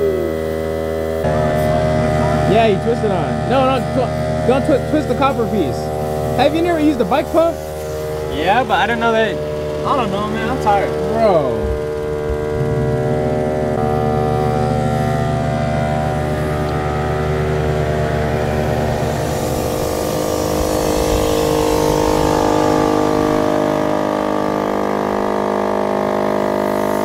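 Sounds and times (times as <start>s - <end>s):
air compressor humming: 0.0s - 27.0s.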